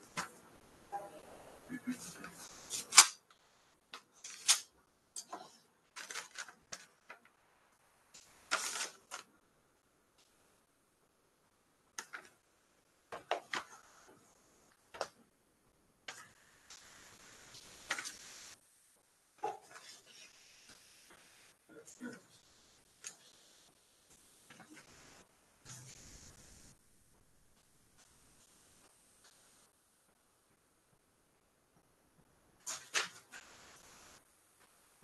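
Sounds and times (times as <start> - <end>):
paper rustling: 5.3 - 7.3, 8.2 - 9.3, 17.6 - 18.3
letter opener slitting envelope: 6.0 - 6.9, 8.5 - 9.3.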